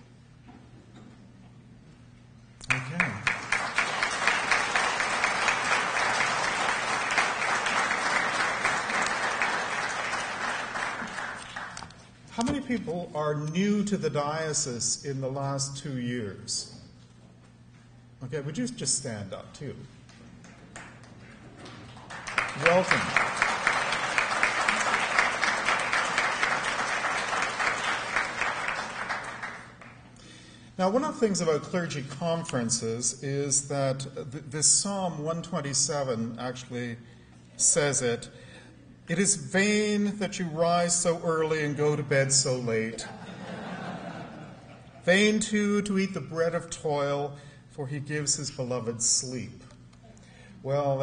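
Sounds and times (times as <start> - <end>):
audience applauding: 2.6 - 12.0, 20.6 - 30.0.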